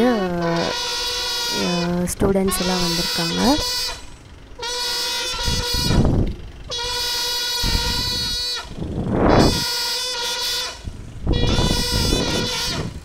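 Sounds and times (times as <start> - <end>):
brass horns holding notes: 6.7 - 13.0.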